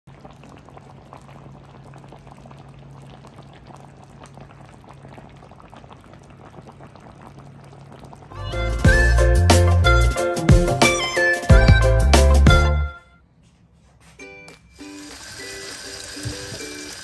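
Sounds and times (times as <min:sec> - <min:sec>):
soup boiling and bubbling: 0:00.1 - 0:09.3, 0:14.8 - 0:17.0.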